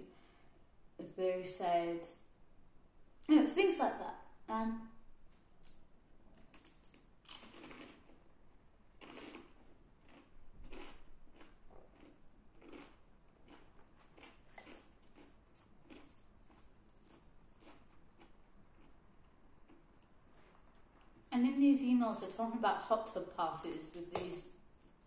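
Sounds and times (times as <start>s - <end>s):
chewing and biting food: 6.5s - 8.3s, 9.0s - 21.3s.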